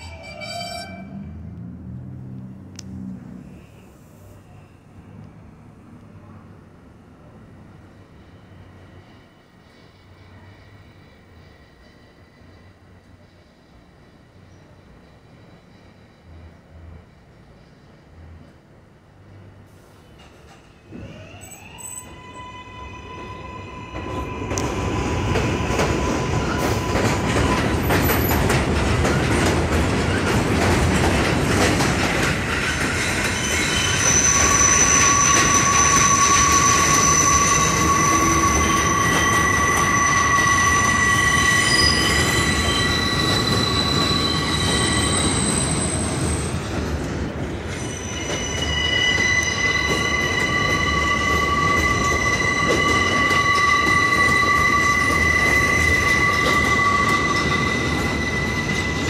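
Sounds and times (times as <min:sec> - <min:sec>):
high-pitched wheel squeal: 0:00.0 - 0:01.4, 0:33.1 - 0:46.6, 0:47.6 - 0:59.0
train rumbling on steel structure: 0:00.0 - 0:59.0.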